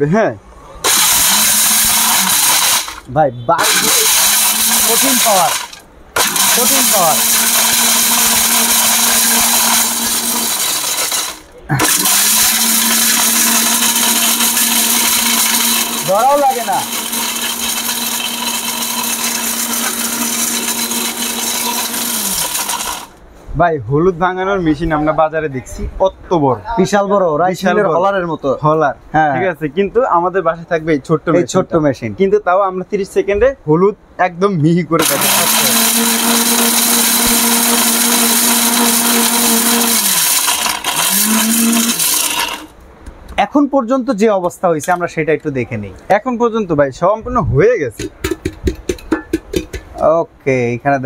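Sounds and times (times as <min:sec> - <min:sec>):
blender motor whirring: 0:00.8 - 0:23.2, 0:35.0 - 0:42.8.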